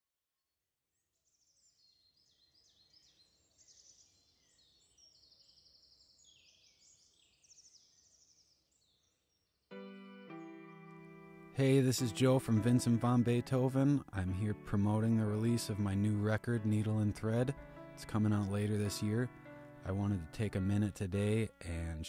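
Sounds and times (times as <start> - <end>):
birds chirping and trilling: 1.2 - 9.7, 12.5 - 22.0.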